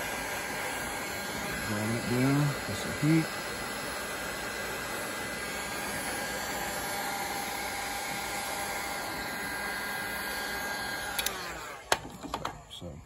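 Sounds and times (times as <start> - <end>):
heat gun blowing: 0.0 - 12.3
fan winding down whine: 0.0 - 13.0
heat gun switch click: 11.1 - 12.0.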